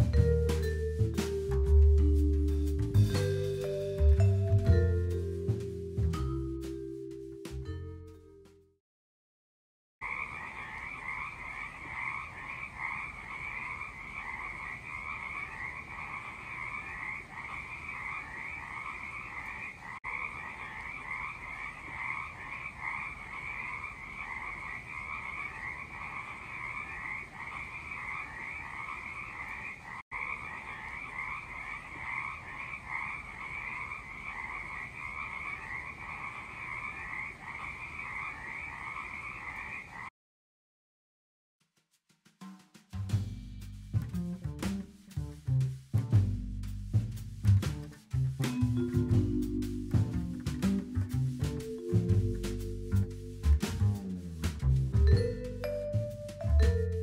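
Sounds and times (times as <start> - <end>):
frog chorus: 10.0 - 40.1.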